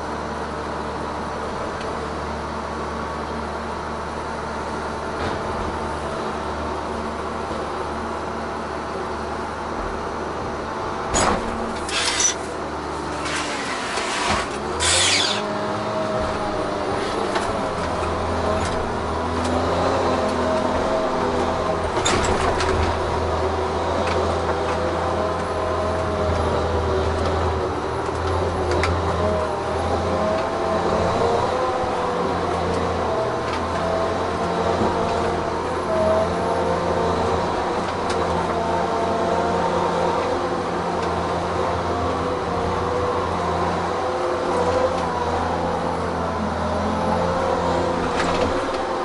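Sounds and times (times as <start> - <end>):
diesel engine running: 0.0 - 49.0
crane clunks: 9.7 - 15.5, 16.1 - 23.3.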